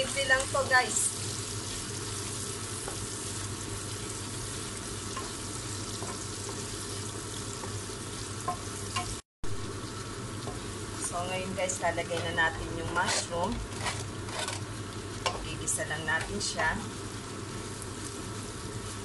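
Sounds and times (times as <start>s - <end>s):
food sizzling in a frying pan: 0.0s - 19.0s
spatula scraping and tapping: 12.0s - 15.5s.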